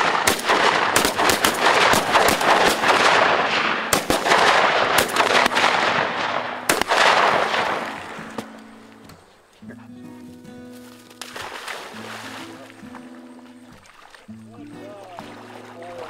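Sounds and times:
shotgun blasts with echoes: 0.0s - 8.6s.

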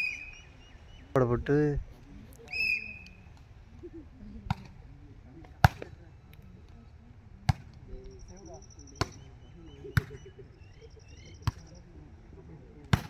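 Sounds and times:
volleyball being hit: 5.6s - 5.9s, 7.4s - 7.8s, 9.0s - 9.2s, 10.0s - 10.2s, 11.4s - 11.7s.

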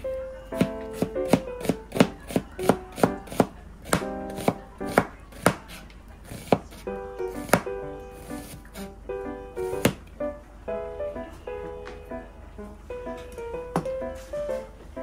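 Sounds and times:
knife tapping cutting board: 0.6s - 5.8s, 7.4s - 7.7s.

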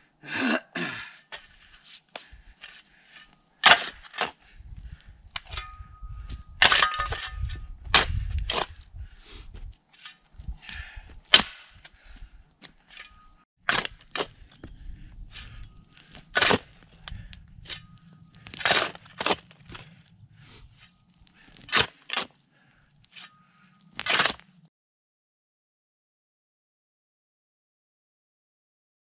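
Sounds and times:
steel tool striking rocky ground: 2.6s - 4.4s, 5.3s - 8.8s, 10.0s - 11.9s, 12.9s - 14.8s, 15.4s - 22.4s, 23.0s - 24.6s.

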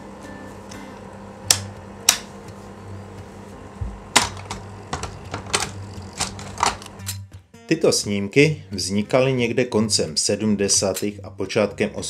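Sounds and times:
projector fan hum: 0.0s - 7.3s
slide projector clicks: 1.5s - 2.3s.

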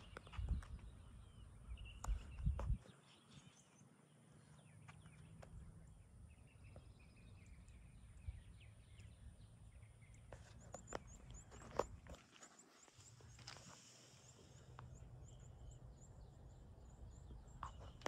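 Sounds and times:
wind rumble on microphone: 0.0s - 3.3s, 5.6s - 9.5s
distant birds chirping: 0.0s - 18.0s
footsteps on asphalt: 10.4s - 13.9s.

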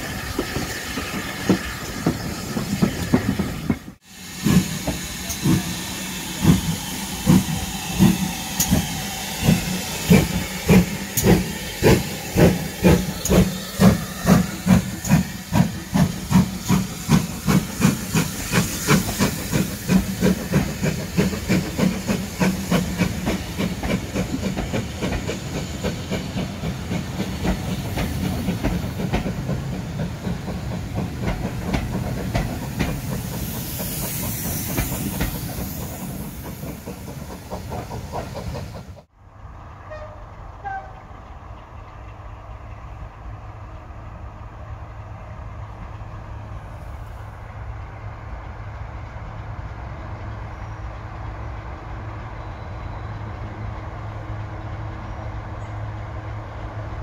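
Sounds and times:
steam hissing: 0.0s - 39.1s
steam locomotive exhaust beats: 0.0s - 57.0s.

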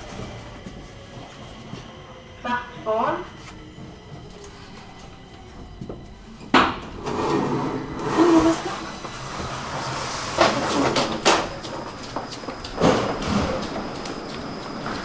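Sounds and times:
train rumble: 0.0s - 15.0s
train clanks: 10.3s - 15.0s.

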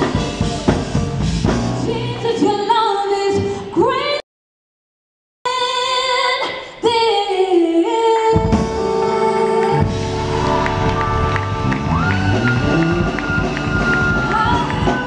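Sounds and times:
band with bass and drums: 0.0s - 2.5s, 8.4s - 15.0s
woman singing: 1.8s - 4.2s, 5.5s - 9.9s, 14.1s - 15.0s.

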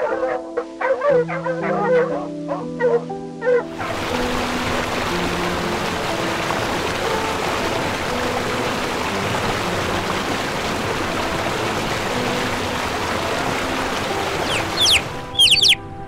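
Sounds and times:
soft music: 0.0s - 16.0s
flowing water rushing: 3.6s - 16.0s
chicks peeping: 14.4s - 15.8s.

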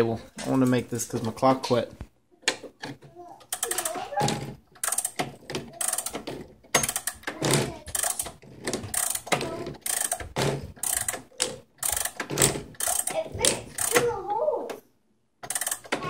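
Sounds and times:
clock winding ratchet clicking: 3.5s - 4.0s, 4.8s - 7.3s, 7.9s - 14.0s, 15.4s - 16.0s.

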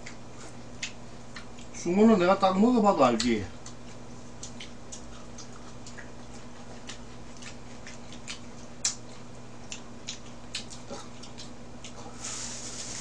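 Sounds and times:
person chewing: 0.0s - 1.8s, 3.2s - 12.9s
steady low hum: 0.0s - 13.0s.

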